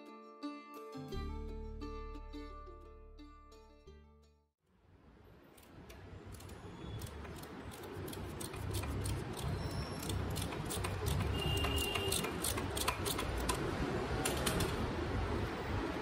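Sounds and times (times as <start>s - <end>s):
socket ratchet clicking: 5.6s - 14.8s
high squeak: 9.4s - 12.7s.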